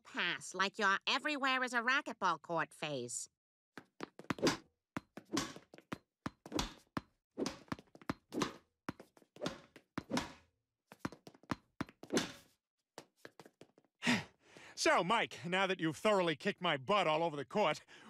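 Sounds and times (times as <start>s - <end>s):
racquetball hits and bounces: 3.8s - 13.9s.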